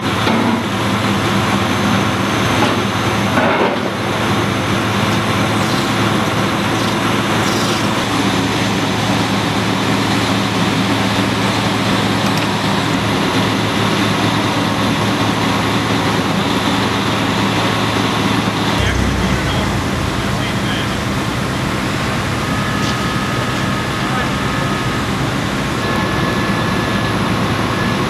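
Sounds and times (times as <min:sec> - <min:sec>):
diesel engines droning: 0:18.7 - 0:26.4.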